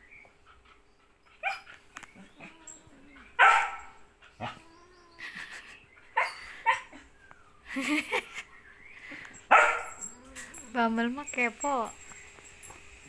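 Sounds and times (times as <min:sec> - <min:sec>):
dog barking: 0:03.4 - 0:04.5, 0:09.5 - 0:10.0.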